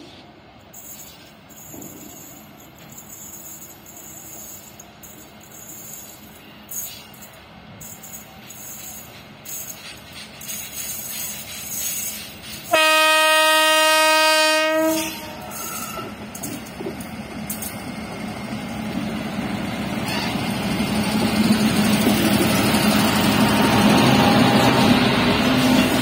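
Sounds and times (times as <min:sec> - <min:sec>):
freight train passing: 0:00.0 - 0:26.0
locomotive horn: 0:12.7 - 0:16.2.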